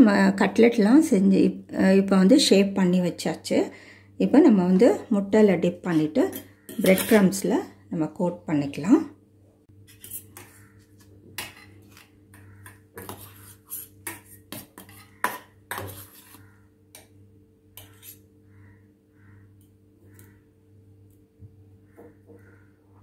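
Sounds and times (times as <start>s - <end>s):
faint steady hum: 0.0s - 23.0s
cutlery clinking on steel bowls: 6.2s - 7.4s, 14.0s - 16.4s.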